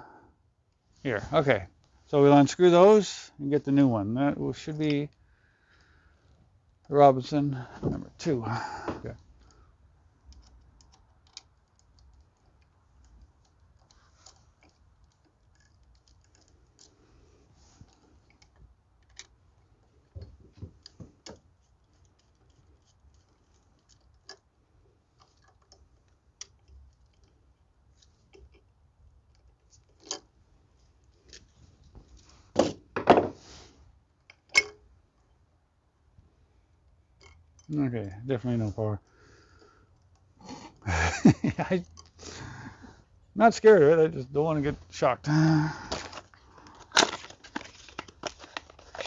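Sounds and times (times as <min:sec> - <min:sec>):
rustling: 0:07.6 - 0:35.4, 0:38.4 - 0:49.0.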